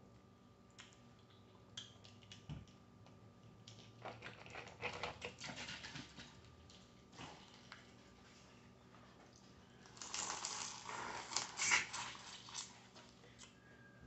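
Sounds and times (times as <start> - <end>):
crawfish shells cracking: 9.8 - 12.8.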